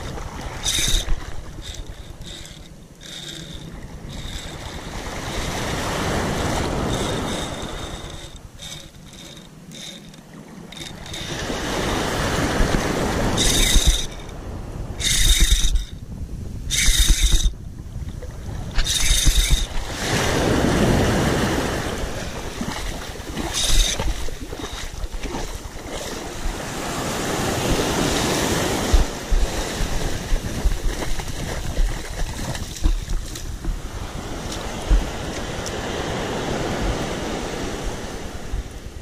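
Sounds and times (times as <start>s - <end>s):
wind buffeting microphone: 10.7s - 39.0s
small surf washing: 18.2s - 39.0s.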